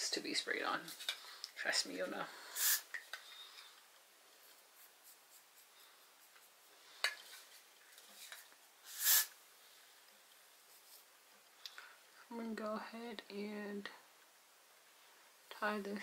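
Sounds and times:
hair spray hiss: 2.5s - 3.0s, 8.8s - 9.4s
fingers rustling hair: 4.3s - 9.3s.

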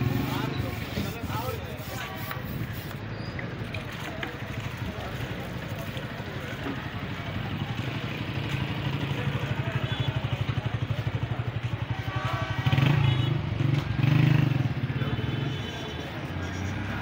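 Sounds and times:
street noise: 0.0s - 17.0s
voices: 0.0s - 17.0s.

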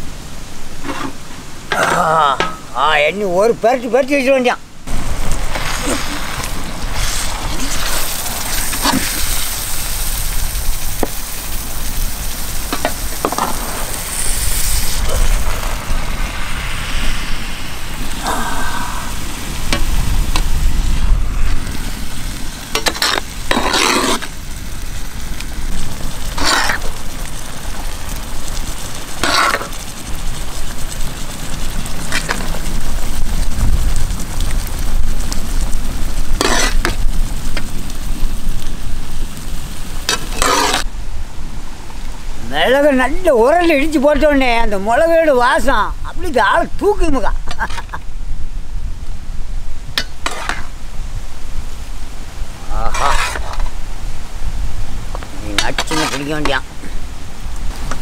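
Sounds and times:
meat frying in gravy: 4.9s - 18.1s, 19.1s - 40.9s, 49.6s - 58.0s
metal ladle scraping a pan: 22.7s - 24.3s, 26.4s - 26.9s, 29.2s - 29.8s, 36.4s - 37.0s, 40.1s - 40.9s, 50.0s - 50.7s, 52.8s - 53.8s.

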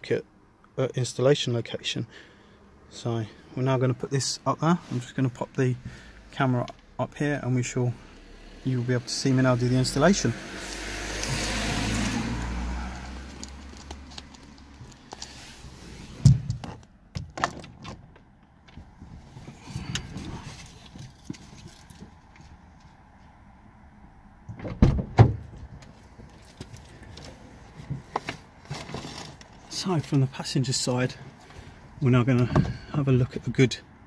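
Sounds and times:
rustling: 25.8s - 30.2s.

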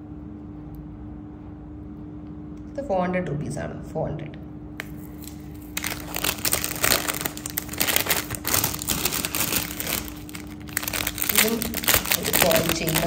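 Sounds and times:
plastic pouches crinkling: 4.8s - 13.0s.

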